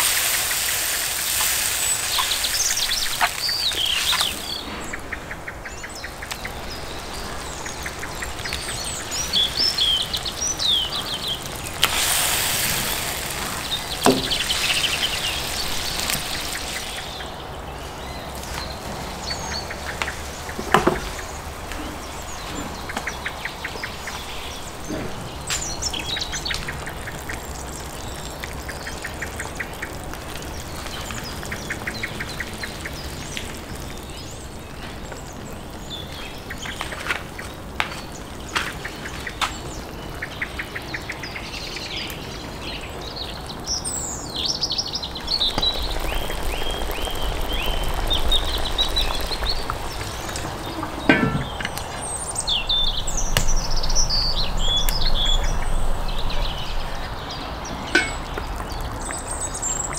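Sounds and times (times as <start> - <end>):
sauce sizzling and bubbling in pot: 0.0 - 4.7, 5.5 - 59.9
birds chirping and trilling: 0.0 - 59.9
knocks in pot: 51.1 - 51.6, 58.0 - 58.3.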